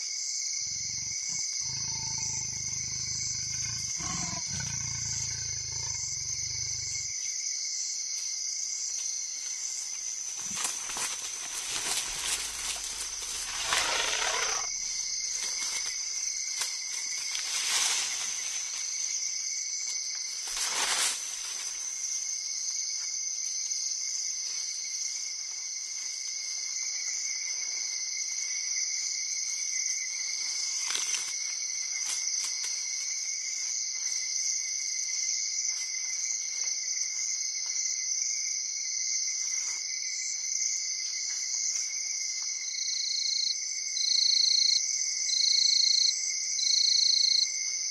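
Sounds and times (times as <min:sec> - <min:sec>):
night insects droning: 0:00.0 - 0:47.9.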